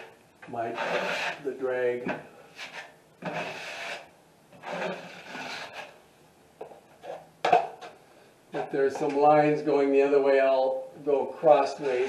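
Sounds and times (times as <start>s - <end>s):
drywall knife scraping: 0.7s - 1.5s, 2.5s - 6.0s, 11.7s - 12.0s.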